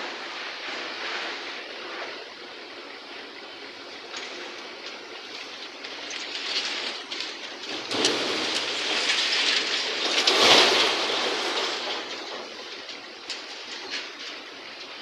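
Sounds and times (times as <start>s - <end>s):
rubble clattering into truck tray: 5.9s - 14.6s.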